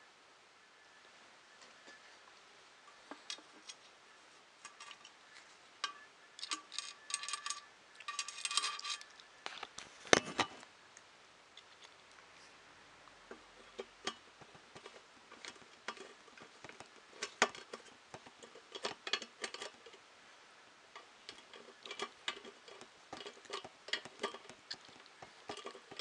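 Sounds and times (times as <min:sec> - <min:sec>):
bolts clinking on metal plate: 0:05.8 - 0:09.1, 0:14.8 - 0:20.0, 0:21.0 - 0:26.0.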